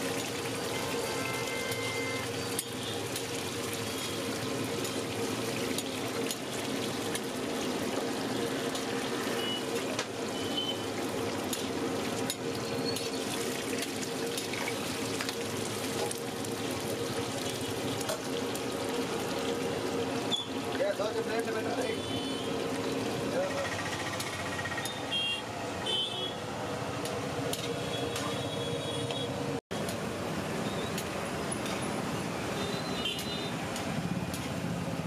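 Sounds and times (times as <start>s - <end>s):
deep-frying sizzle: 0.0s - 35.0s.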